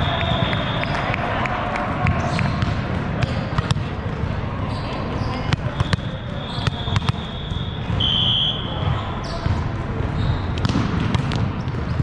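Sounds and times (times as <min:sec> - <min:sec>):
referee's whistle: 0:00.0 - 0:01.1, 0:04.7 - 0:09.4
murmur of voices: 0:00.0 - 0:12.0
volleyball thuds on court: 0:10.6 - 0:11.9.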